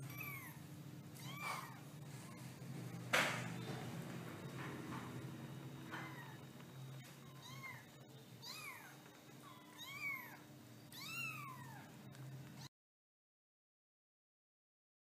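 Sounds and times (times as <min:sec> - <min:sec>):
kittens mewing: 0:00.0 - 0:02.7, 0:05.8 - 0:12.0.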